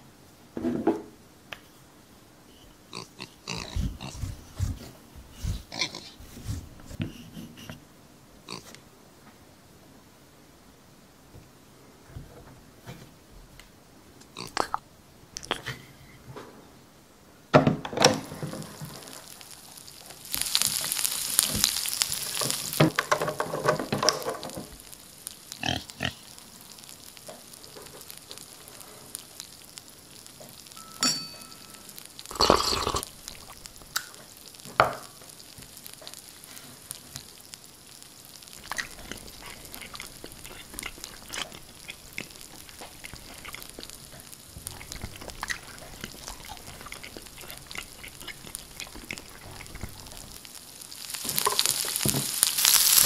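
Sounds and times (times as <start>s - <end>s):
loud sizzling: 2.9s - 7.3s, 18.0s - 53.0s
knocks and clatters: 22.8s - 24.7s.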